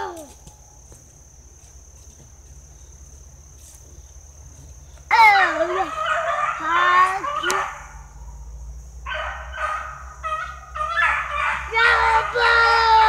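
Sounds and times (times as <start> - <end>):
high insect drone: 0.0 - 13.0
dogs yelping: 5.1 - 8.4, 9.1 - 13.0.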